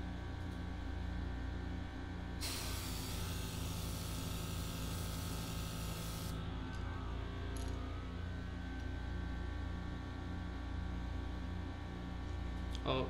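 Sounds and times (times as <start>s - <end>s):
compressor humming: 0.0s - 11.2s
airbrush hissing: 2.4s - 6.4s.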